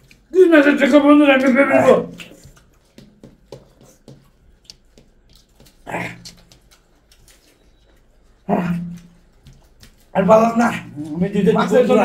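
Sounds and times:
chewing: 3.8s - 11.9s.

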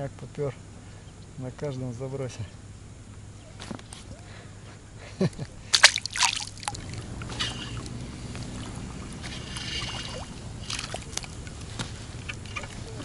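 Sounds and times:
clatters and splashes on water: 5.7s - 13.0s
water lapping against raft: 5.7s - 13.0s.

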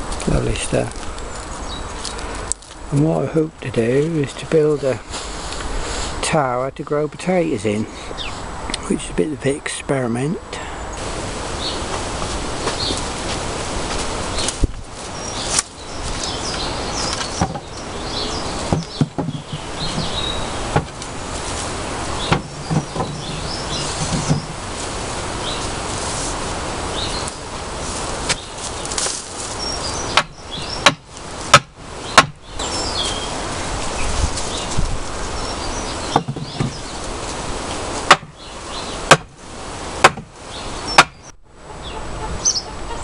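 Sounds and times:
birds chirping: 0.0s - 43.0s
steady outdoor hiss: 0.0s - 43.0s
wooden knocks: 17.4s - 17.7s, 18.7s - 21.0s, 22.3s - 24.6s, 36.1s - 36.8s.

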